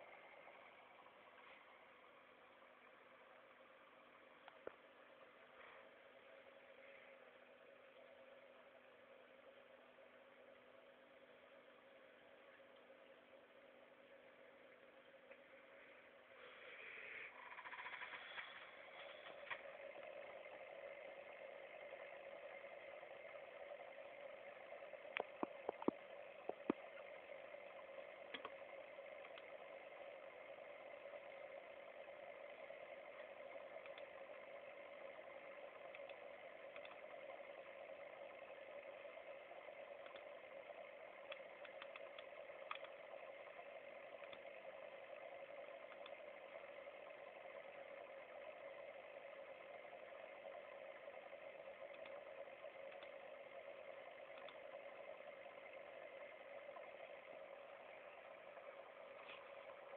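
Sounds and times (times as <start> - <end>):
small clicks: 4.4 - 4.9, 16.5 - 22.8, 23.4 - 59.9
aquarium pump hum and bubbling: 11.2 - 59.9.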